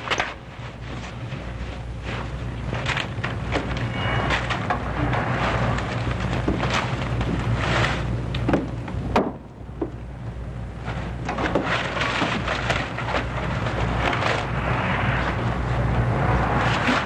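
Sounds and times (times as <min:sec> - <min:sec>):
film soundtrack hiss and hum: 0:00.0 - 0:17.0
objects knocking and clattering: 0:02.1 - 0:10.0, 0:11.2 - 0:14.5.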